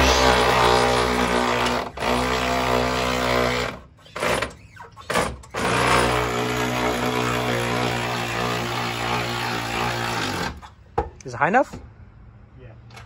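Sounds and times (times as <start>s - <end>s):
powered jack motor running: 0.0s - 3.0s.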